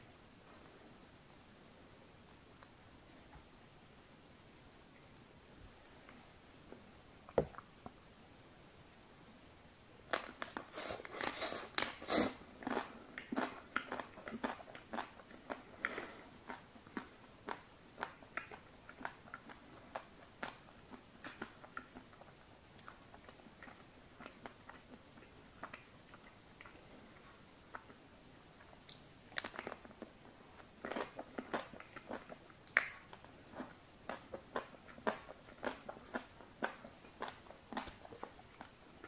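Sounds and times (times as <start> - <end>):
chewing with mouth clicks: 10.1 - 39.0.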